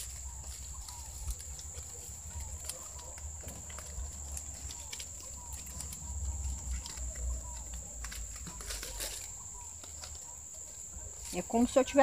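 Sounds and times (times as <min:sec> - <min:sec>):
palm leaves rustling and crackling: 0:00.0 - 0:12.0.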